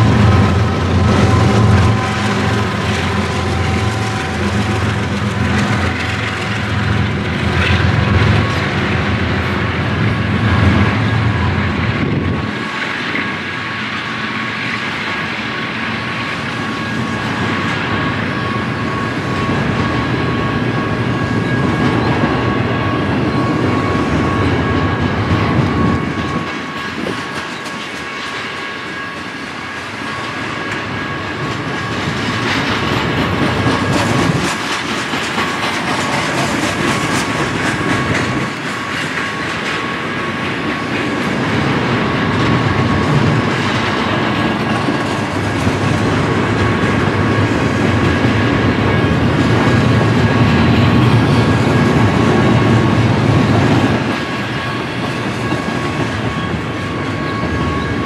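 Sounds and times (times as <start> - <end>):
freight train rumbling past: 0.0 - 58.0
wheels clicking over rails: 31.6 - 56.5.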